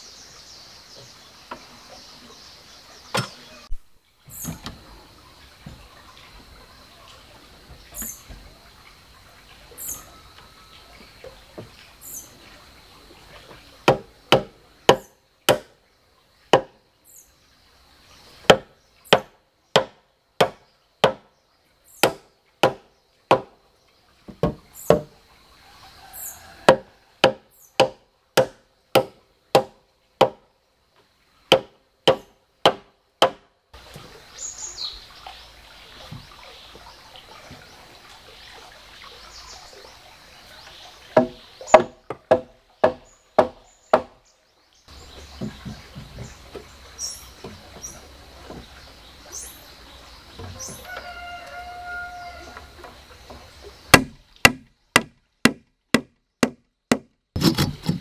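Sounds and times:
hatchet chopping wood: 13.9s - 15.7s, 16.5s - 16.8s, 18.5s - 21.3s, 22.0s - 23.6s, 24.3s - 25.1s, 26.6s - 30.4s, 31.5s - 33.5s, 41.2s - 44.2s, 53.9s - 58.0s.

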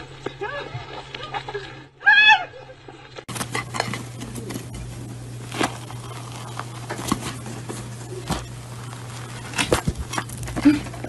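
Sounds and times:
steady low hum: 0.0s - 11.0s
plastic container crackling: 3.3s - 11.0s.

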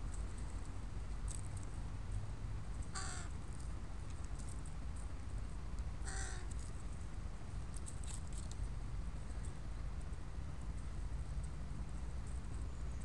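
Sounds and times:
crow cawing: 3.0s - 3.3s, 6.0s - 6.5s.

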